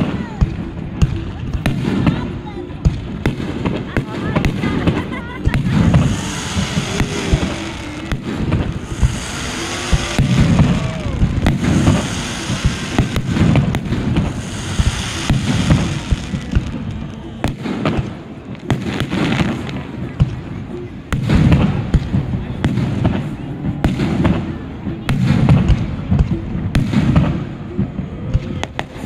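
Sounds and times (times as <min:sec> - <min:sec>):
fireworks booms and bangs: 0:00.0 - 0:29.0
hissing spray of fountain fireworks: 0:00.0 - 0:29.0.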